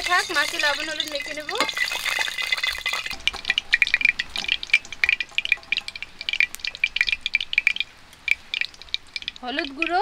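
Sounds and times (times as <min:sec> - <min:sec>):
oil crackling and popping: 0:00.0 - 0:10.0.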